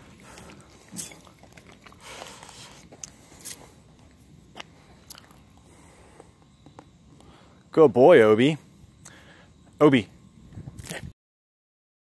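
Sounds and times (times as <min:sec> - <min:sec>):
dog chewing a treat: 0:00.0 - 0:03.7.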